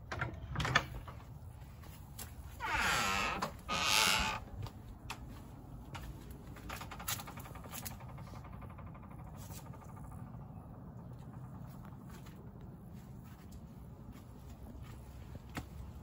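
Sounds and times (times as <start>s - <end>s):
wooden gate creaking: 0.0s - 1.5s, 2.4s - 5.3s, 5.9s - 10.4s
footsteps on grass: 11.9s - 16.0s.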